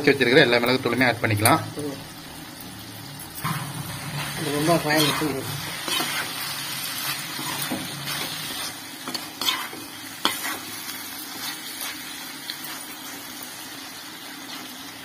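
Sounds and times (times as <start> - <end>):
oil sizzling: 0.0 - 15.0
metal spatula scraping pan: 3.4 - 10.7.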